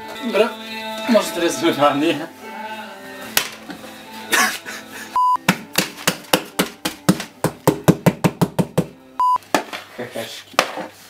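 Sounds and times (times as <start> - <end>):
palms slapping plastic bowl: 5.4 - 8.9.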